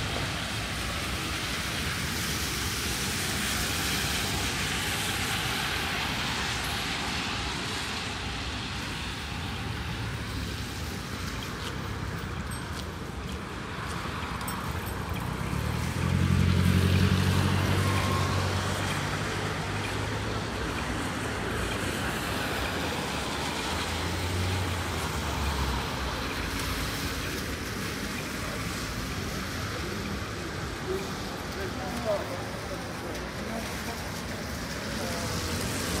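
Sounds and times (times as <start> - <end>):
rain on wet road hiss: 0.0 - 36.0
vehicle engine hum: 11.1 - 36.0.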